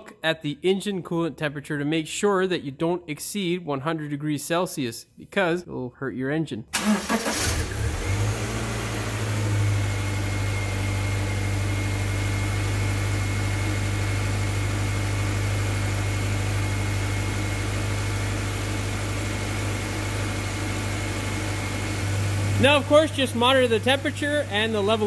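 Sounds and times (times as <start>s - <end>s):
car engine idling: 17.6s - 25.0s.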